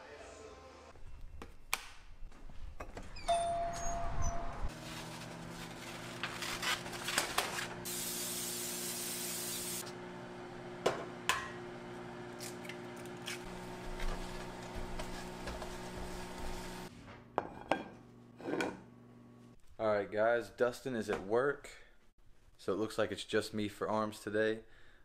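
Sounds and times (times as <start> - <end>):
cooking spray hissing: 7.8 - 9.9.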